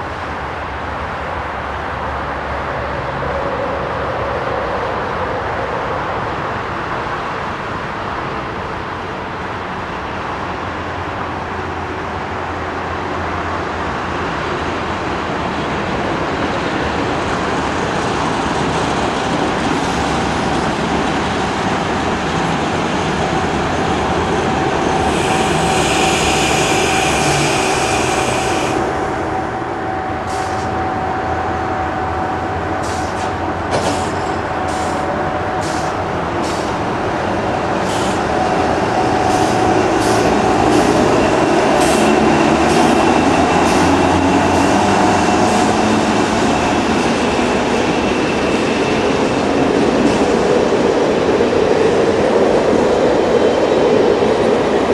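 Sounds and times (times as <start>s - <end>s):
train rumbling on rails: 0.0s - 54.9s
high piercing brake squeal: 25.0s - 28.8s.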